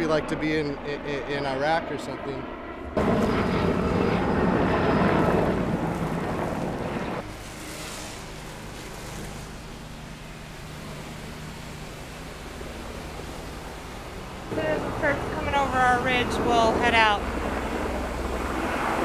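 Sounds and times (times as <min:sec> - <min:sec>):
helicopter flying past: 0:00.0 - 0:19.0
garden hose spraying water: 0:07.2 - 0:16.0.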